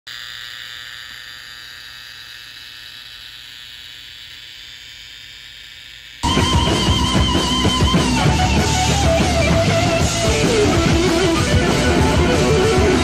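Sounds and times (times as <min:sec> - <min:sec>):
loud rock music: 0:06.2 - 0:13.0.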